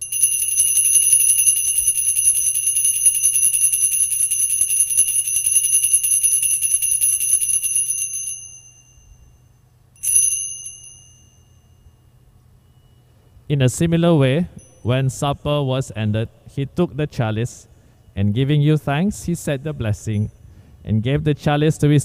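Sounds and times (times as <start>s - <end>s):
altar bells ringing: 0.0s - 11.9s.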